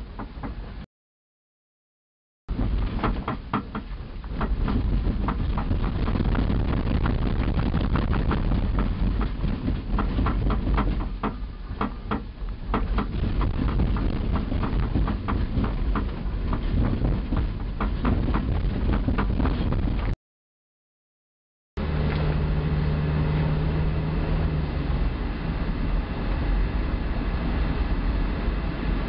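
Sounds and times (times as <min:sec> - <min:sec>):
knocks and rattles: 0:02.5 - 0:20.2
vehicle rumble: 0:02.5 - 0:20.2, 0:21.8 - 0:29.0.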